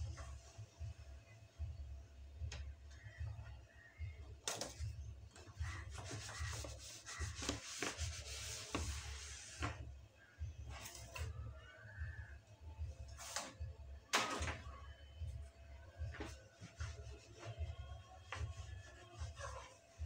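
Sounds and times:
cloth rubbing plastic mat: 0:05.6 - 0:10.0, 0:16.0 - 0:20.0.

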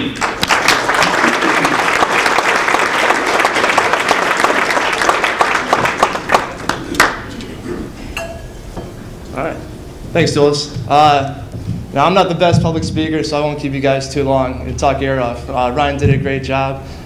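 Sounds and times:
audience applause: 0:00.0 - 0:07.3.

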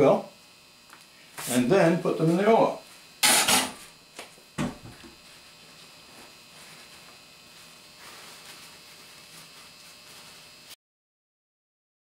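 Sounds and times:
paper towel rustling: 0:05.2 - 0:10.8.

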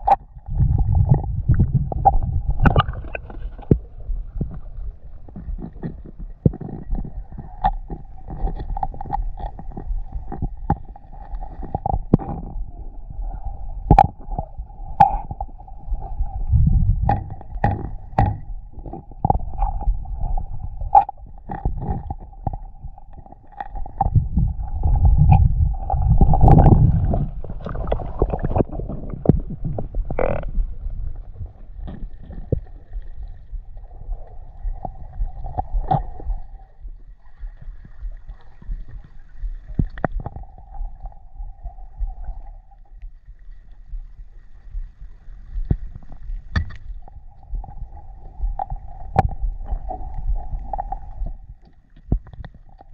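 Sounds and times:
faint steady hum: 0:00.0 - 0:52.9
low underwater rumbles: 0:00.0 - 0:52.9
clicks and knocks: 0:17.0 - 0:19.8.

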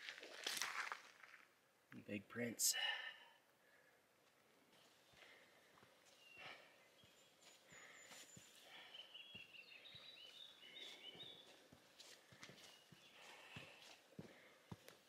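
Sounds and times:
footsteps on rocky dirt trail: 0:00.0 - 0:01.5, 0:04.2 - 0:15.0
small bird chirping: 0:06.1 - 0:11.7.

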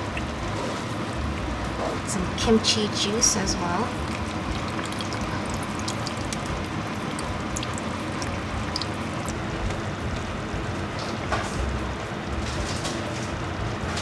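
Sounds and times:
liquid trickling into a pan: 0:03.9 - 0:09.6.

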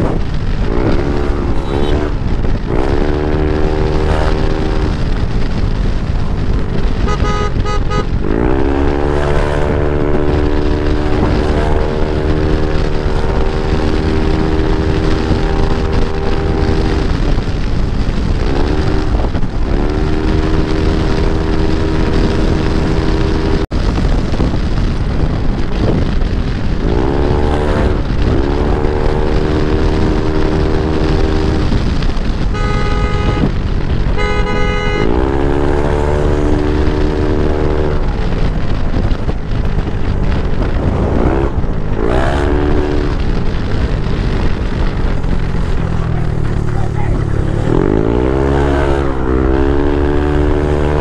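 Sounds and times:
scooter engine accelerating: 0:00.0 - 0:23.7, 0:25.1 - 0:51.0
road and wind rumble: 0:00.0 - 0:51.0
horn blasts: 0:00.7 - 0:02.9, 0:03.5 - 0:05.0, 0:06.9 - 0:17.2, 0:32.4 - 0:38.0.

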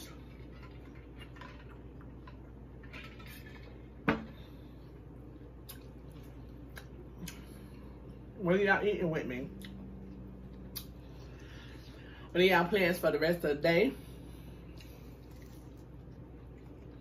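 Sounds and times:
faint handling and eating sounds: 0:00.0 - 0:08.4, 0:09.0 - 0:17.0.

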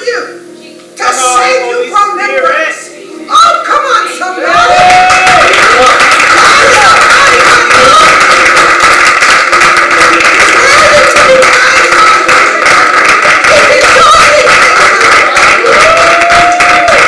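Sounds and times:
crowd clapping: 0:04.5 - 0:17.0.

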